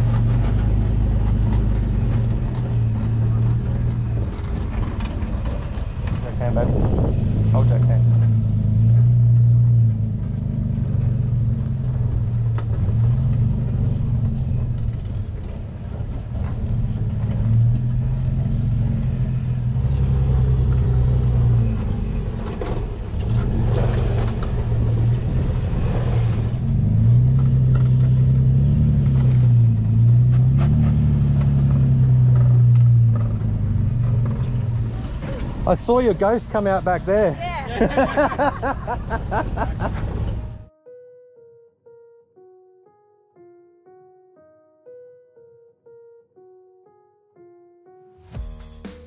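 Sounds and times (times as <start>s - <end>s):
vehicle engine revving in sand: 0.0s - 36.6s, 37.8s - 40.6s.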